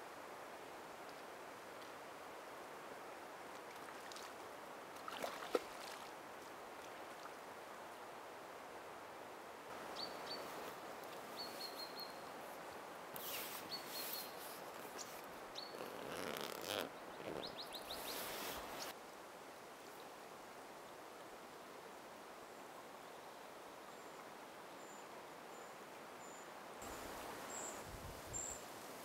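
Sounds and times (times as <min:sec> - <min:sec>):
splash and click at water: 0:03.5 - 0:04.4, 0:05.0 - 0:06.1.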